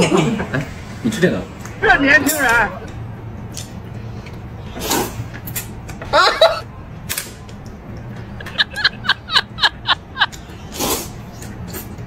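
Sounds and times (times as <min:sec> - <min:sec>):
person slurping noodles: 0:04.7 - 0:05.3, 0:10.6 - 0:12.0.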